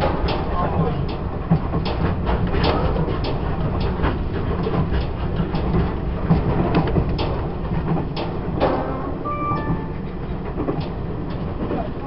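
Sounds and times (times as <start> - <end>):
sharp clicks and knocks: 0.0 - 9.0
train wheels rumbling on track: 0.0 - 12.0.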